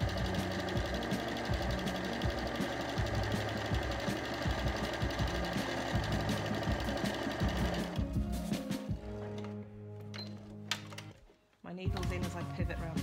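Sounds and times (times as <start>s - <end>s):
sewing machine running: 0.0s - 8.2s.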